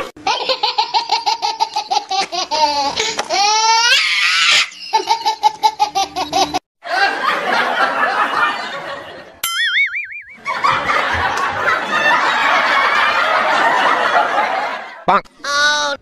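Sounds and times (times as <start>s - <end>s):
high-pitched laughter: 0.2s - 7.3s
rough mixed laughter: 4.8s - 9.4s, 10.4s - 15.1s.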